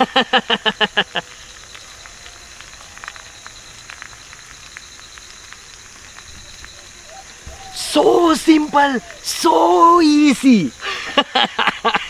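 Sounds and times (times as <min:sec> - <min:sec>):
man laughing: 0:00.0 - 0:01.3, 0:07.8 - 0:12.0
egg sizzling in a pan: 0:00.0 - 0:09.6
small crackles: 0:00.0 - 0:12.0.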